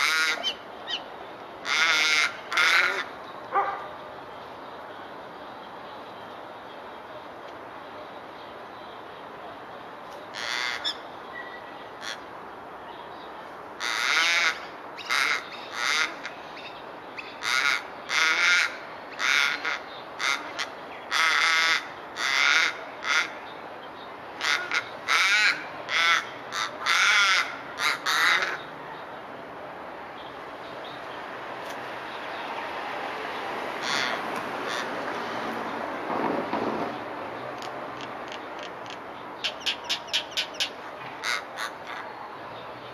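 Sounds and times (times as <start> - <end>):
raven harsh calls: 0.0 - 3.9, 10.3 - 12.3, 13.8 - 23.5, 24.4 - 28.8, 33.5 - 35.6, 39.4 - 42.2.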